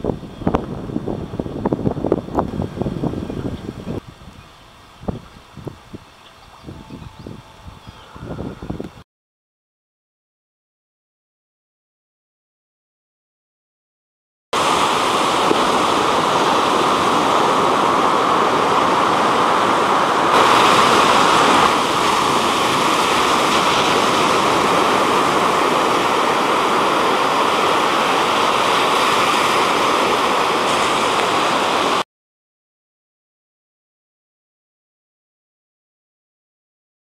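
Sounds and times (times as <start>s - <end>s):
waves breaking on a beach: 14.6s - 32.0s.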